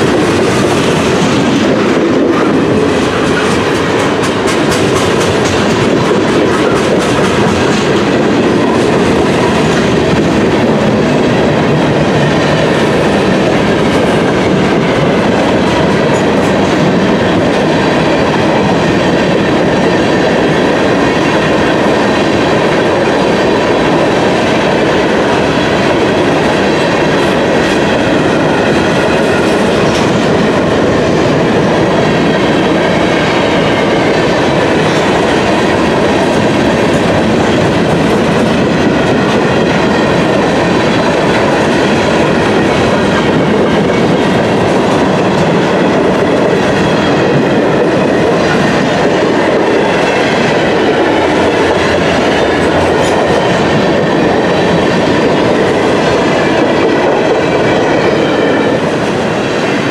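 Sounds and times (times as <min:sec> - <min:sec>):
train wheels rumbling on rails: 0:00.0 - 0:59.9.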